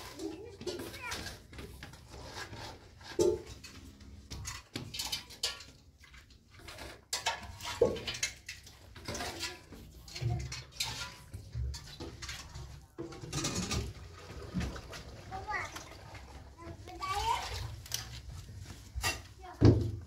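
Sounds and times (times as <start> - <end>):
objects knocking and clinking: 3.1 - 14.8.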